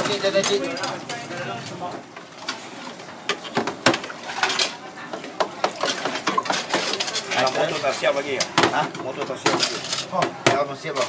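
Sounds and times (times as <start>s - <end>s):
spoons clinking against steel pots: 4.2s - 11.0s.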